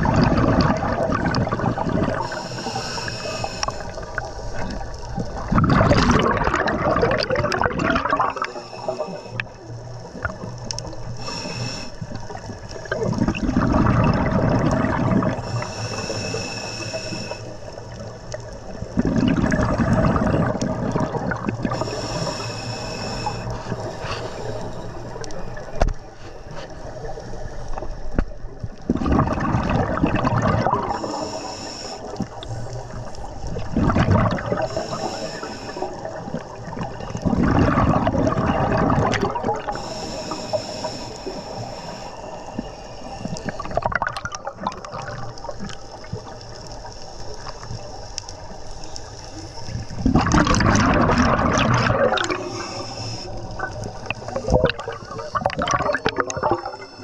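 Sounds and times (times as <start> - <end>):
gurgling exhaled bubbles: 0.0 - 57.0
regulator hiss on inhalation: 2.2 - 5.0, 8.3 - 12.3, 15.4 - 17.8, 21.7 - 25.2, 30.8 - 32.8, 34.5 - 37.2, 39.6 - 43.8, 52.2 - 57.0.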